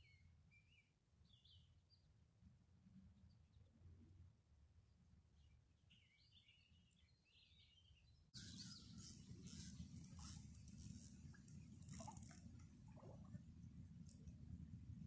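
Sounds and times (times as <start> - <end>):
bird chirping: 5.9 - 10.4.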